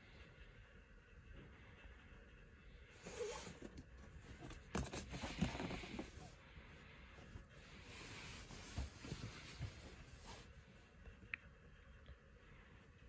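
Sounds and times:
faint rustling and scuffing: 7.2s - 10.8s.

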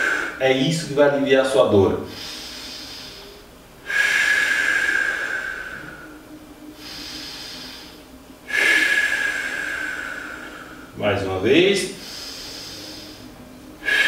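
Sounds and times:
inhale through nose: 2.1s - 6.2s, 6.8s - 10.9s, 12.0s - 14.0s.

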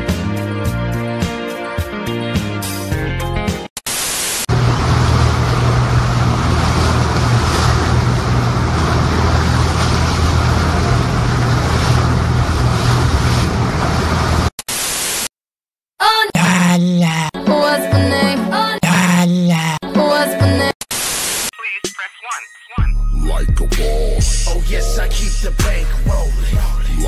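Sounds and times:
water splashing: 3.8s - 15.2s
boat engine drone: 4.5s - 14.6s
static hiss: 20.9s - 21.6s.

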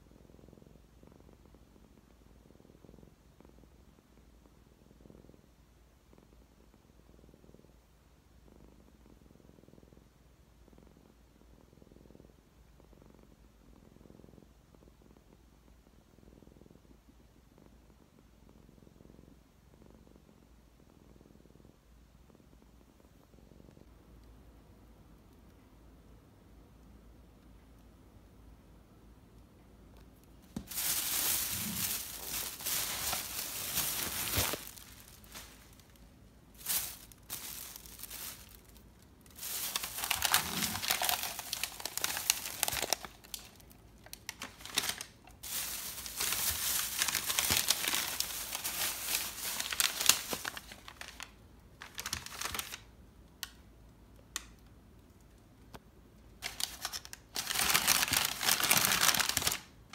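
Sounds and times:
packing paper crinkling: 30.5s - 52.9s, 56.4s - 59.8s.

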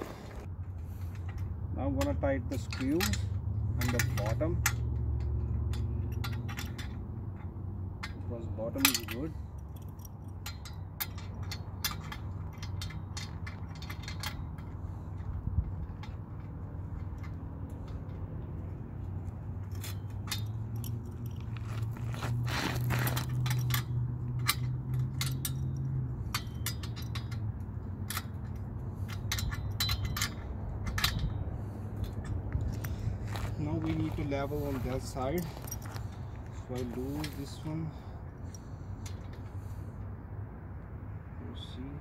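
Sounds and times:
light metallic clicks and scrapes: 0.1s - 42.0s.

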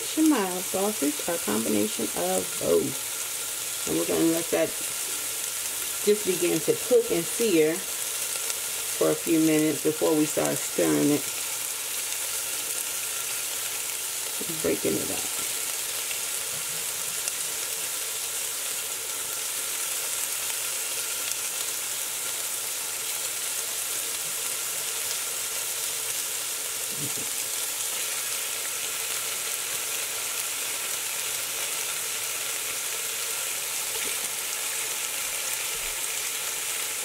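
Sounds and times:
sausage sizzling in hot oil: 0.0s - 37.0s.

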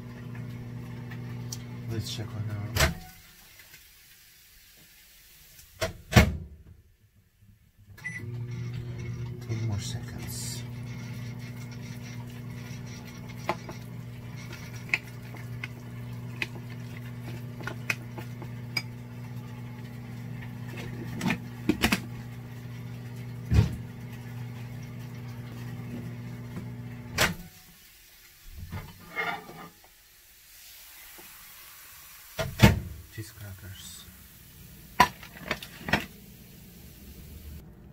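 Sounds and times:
microwave oven humming: 0.0s - 3.2s, 7.9s - 27.6s, 34.0s - 37.9s.

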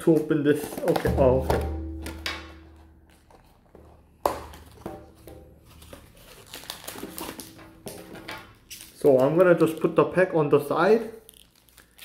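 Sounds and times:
plastic wrap crinkling: 2.7s - 12.0s.

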